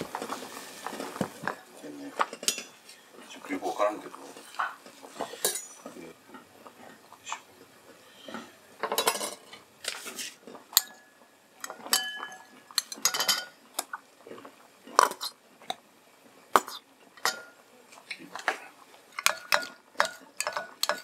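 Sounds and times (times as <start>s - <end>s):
spoon clinking bowl ringing: 11.9s - 13.6s.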